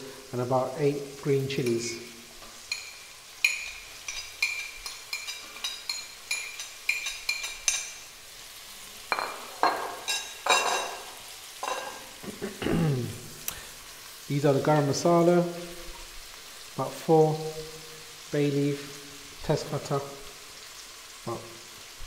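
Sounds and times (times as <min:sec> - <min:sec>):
onions frying in oil: 0:00.0 - 0:22.0
metal spoon clinking on plate: 0:02.7 - 0:08.0, 0:09.1 - 0:11.0, 0:11.6 - 0:12.0.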